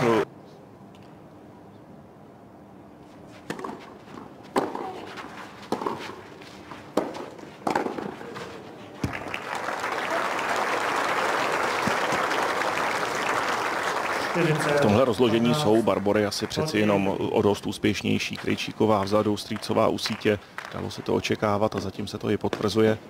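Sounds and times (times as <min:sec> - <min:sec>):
tennis ball hit by rackets: 0:03.5 - 0:05.1, 0:05.7 - 0:06.2, 0:06.9 - 0:09.2
crowd applause: 0:09.0 - 0:15.7.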